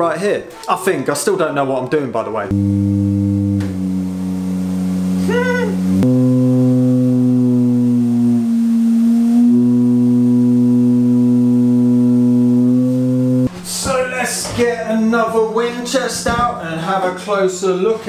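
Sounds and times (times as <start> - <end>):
sustained chords music: 2.5 - 13.5.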